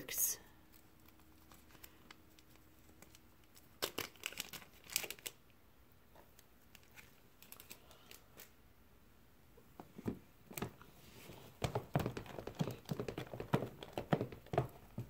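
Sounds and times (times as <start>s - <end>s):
packet crinkling: 0.7s - 5.4s, 6.6s - 8.5s.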